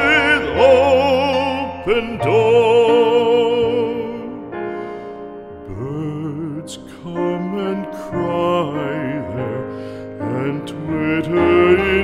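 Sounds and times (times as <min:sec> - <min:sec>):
trained singer with vibrato: 0:00.0 - 0:04.5
piano accompaniment: 0:00.0 - 0:12.0.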